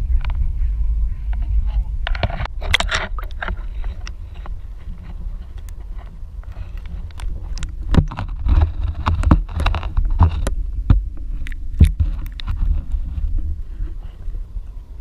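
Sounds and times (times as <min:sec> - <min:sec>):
steady low rumble: 0:00.0 - 0:15.0
water sloshing against camera housing: 0:02.1 - 0:13.5.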